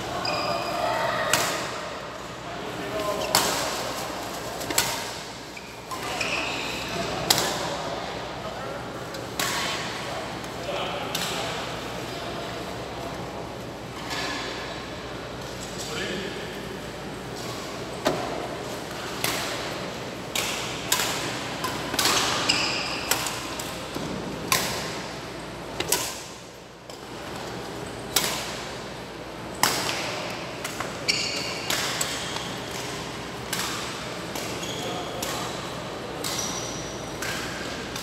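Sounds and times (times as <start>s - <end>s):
shoes squeaking on court floor: 0.0s - 0.9s, 4.6s - 7.1s, 22.0s - 23.4s, 30.8s - 33.0s, 34.4s - 35.6s, 36.3s - 37.1s.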